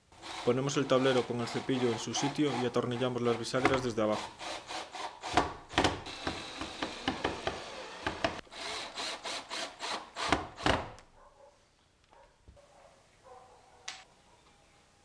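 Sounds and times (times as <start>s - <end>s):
cordless drill driving screws: 0.2s - 11.0s.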